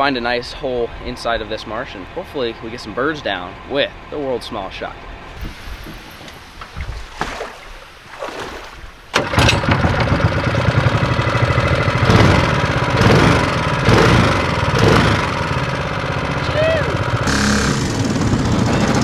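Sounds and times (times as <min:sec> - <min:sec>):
boat motor running: 0:09.1 - 0:19.0.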